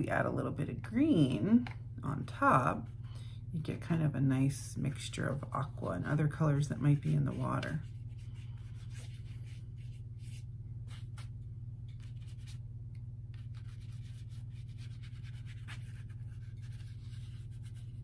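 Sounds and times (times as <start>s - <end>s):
low hum: 0.0s - 18.0s
paintbrush scrubbing paper: 6.9s - 11.3s, 11.9s - 12.6s, 13.3s - 18.0s.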